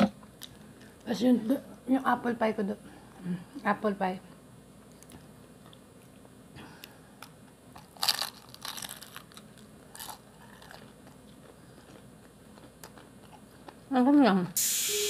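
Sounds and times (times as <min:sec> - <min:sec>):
crunchy chewing: 0:04.8 - 0:13.9.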